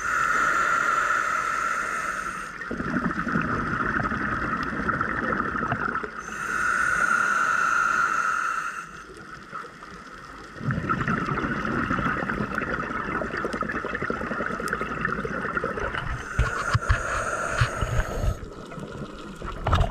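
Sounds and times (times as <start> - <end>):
regulator hissing inhale: 0.0 - 2.6, 6.2 - 9.2, 16.1 - 18.6
exhaled bubbles burbling: 2.6 - 6.2, 10.5 - 19.9.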